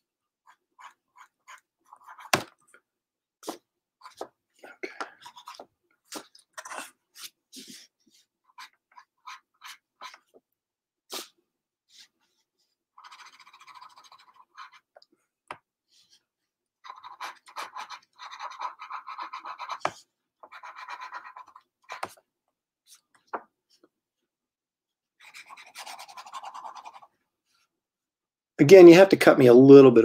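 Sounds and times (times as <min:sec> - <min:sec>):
pencil scratching on paper: 0:00.4 - 0:02.4, 0:05.2 - 0:10.3, 0:13.0 - 0:15.0, 0:15.9 - 0:22.3, 0:25.2 - 0:27.7.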